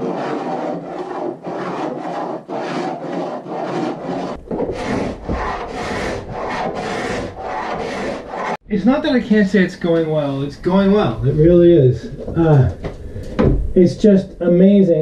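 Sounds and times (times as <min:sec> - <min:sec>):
hand scraper rasping on wood: 0:00.0 - 0:08.6.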